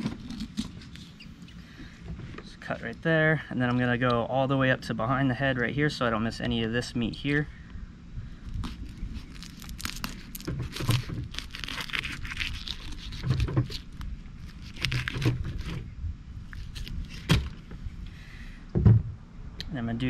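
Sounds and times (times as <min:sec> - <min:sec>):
knife scraping through fish: 0:08.6 - 0:15.8.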